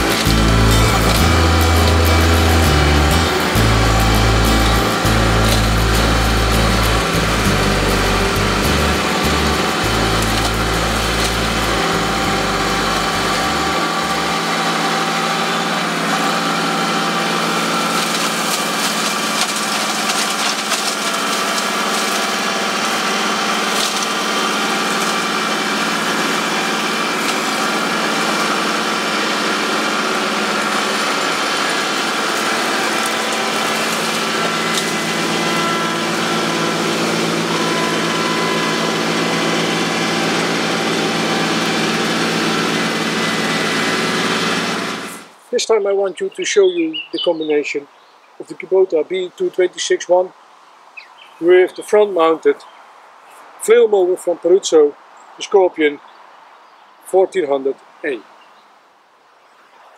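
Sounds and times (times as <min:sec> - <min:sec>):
debris ticking against flails: 0:00.0 - 0:29.0
flail mower spinning: 0:00.0 - 0:45.6
tractor diesel engine running: 0:00.0 - 0:47.8.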